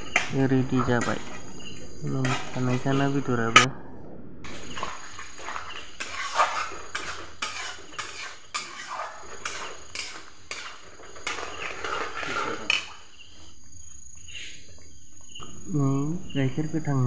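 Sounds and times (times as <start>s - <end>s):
metal spatula scraping a pan: 0.0s - 3.7s, 4.5s - 13.5s.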